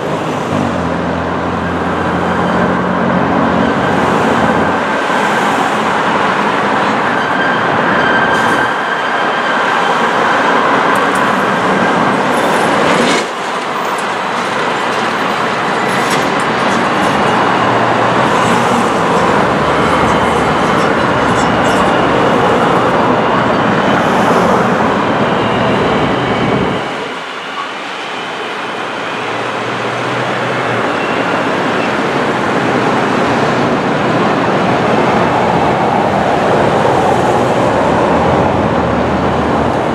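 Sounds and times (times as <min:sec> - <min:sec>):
street traffic: 0:00.0 - 0:39.9
train wheels clacking on rails: 0:01.6 - 0:39.9
thin steady wheel squeal: 0:03.6 - 0:12.9, 0:13.6 - 0:29.8, 0:30.6 - 0:32.0.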